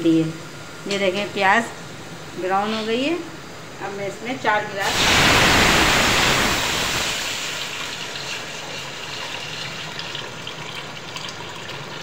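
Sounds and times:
water pouring into pot: 0:04.8 - 0:12.0.

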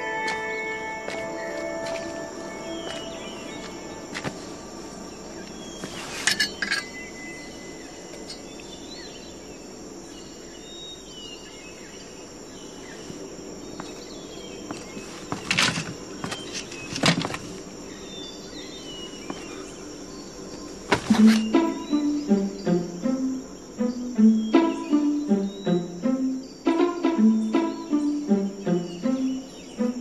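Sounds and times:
bird chirps: 0:00.0 - 0:09.6, 0:13.8 - 0:30.0
insects chirring: 0:00.0 - 0:30.0
clinks and knocks: 0:06.2 - 0:07.0.

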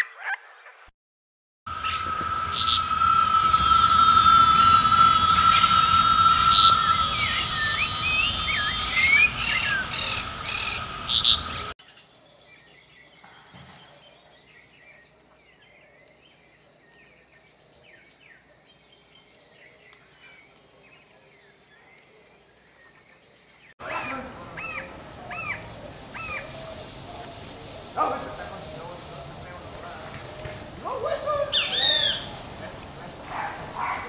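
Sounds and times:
loud insect buzzing: 0:01.7 - 0:11.7
birds chirping: 0:01.7 - 0:11.8, 0:24.0 - 0:34.0.

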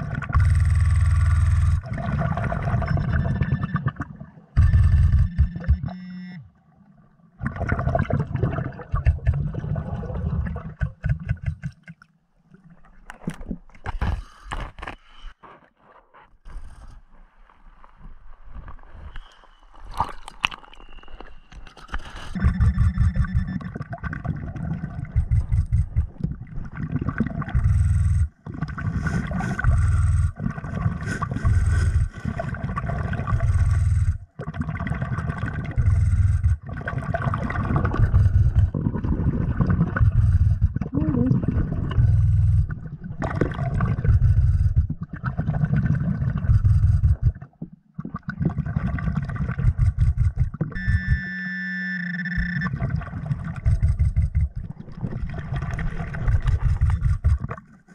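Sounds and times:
underwater low rumbling and knocking: 0:00.0 - 0:03.8, 0:04.6 - 0:05.9, 0:08.4 - 0:11.8, 0:22.4 - 0:34.4, 0:35.4 - 0:51.3, 0:52.4 - 0:57.9
steady tone: 0:50.2 - 0:54.5.

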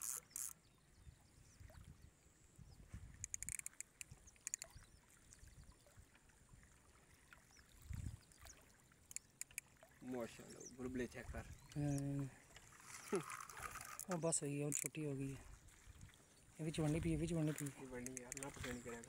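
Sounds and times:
small waves lapping: 0:00.0 - 0:19.0
light ticks: 0:03.2 - 0:04.8, 0:09.0 - 0:09.7, 0:17.5 - 0:19.0.

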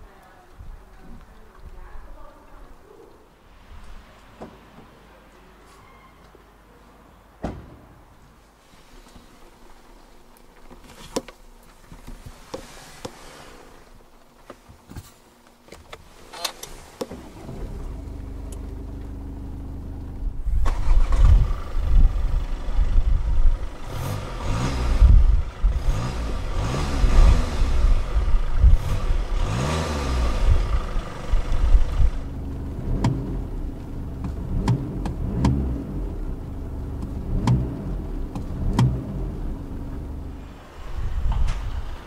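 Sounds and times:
car engine starting and revving: 0:16.8 - 0:42.0.

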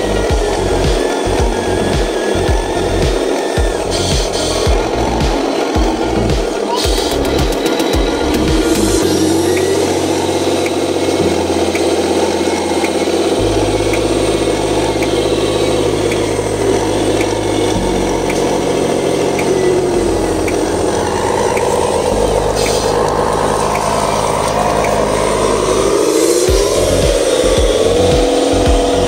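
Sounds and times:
small electric motor and gears: 0:00.0 - 0:29.0.

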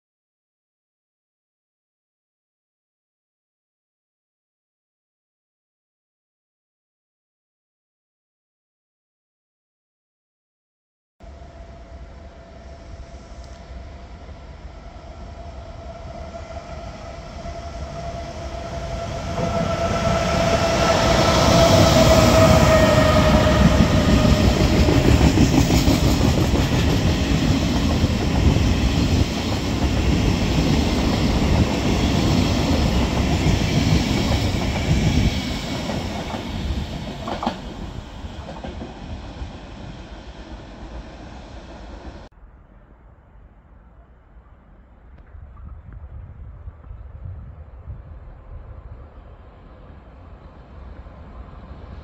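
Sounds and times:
train whine: 0:11.2 - 0:45.2, 0:47.4 - 0:52.0
train wheels clacking over rail joints: 0:32.3 - 0:39.5.

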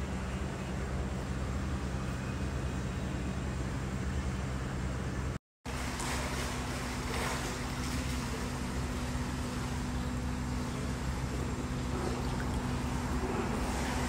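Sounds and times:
steady low hum: 0:00.0 - 0:14.0
water splashing in a pool: 0:05.7 - 0:14.0.

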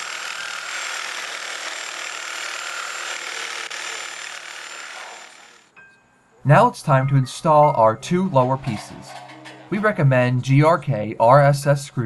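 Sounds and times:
reciprocating saw cutting wood: 0:00.0 - 0:05.7.

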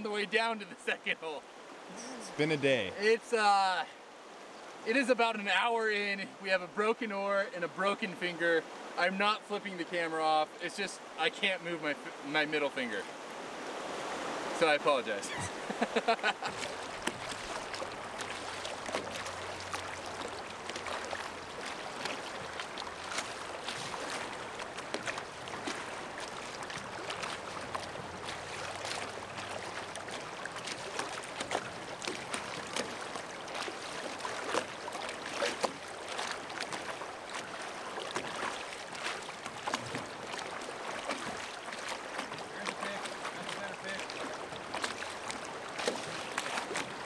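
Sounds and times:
river water splashing and gurgling: 0:00.0 - 0:47.0.

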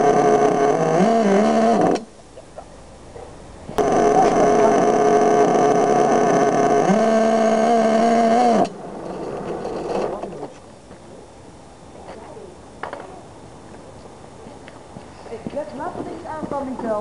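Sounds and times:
small engine running: 0:00.0 - 0:02.1, 0:03.8 - 0:10.4.

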